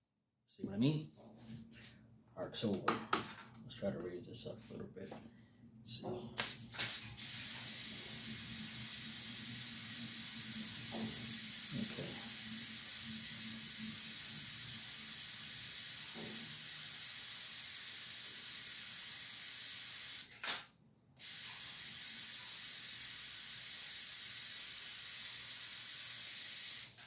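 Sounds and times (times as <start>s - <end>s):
sharp electric snap: 6.4s - 7.9s, 16.0s - 23.9s
high-voltage corona discharge hiss: 6.4s - 20.5s, 21.2s - 27.0s.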